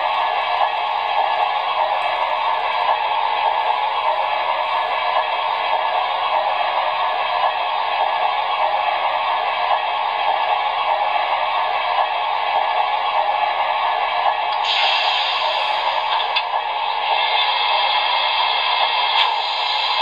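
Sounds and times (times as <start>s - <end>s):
model locomotive speaker hiss: 14.6s - 16.4s, 17.0s - 20.0s.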